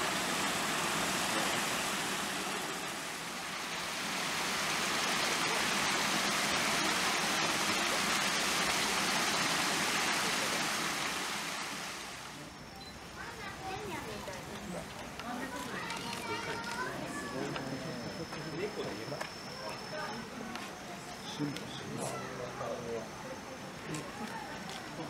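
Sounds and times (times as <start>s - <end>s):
running water rushing: 0.0s - 17.9s.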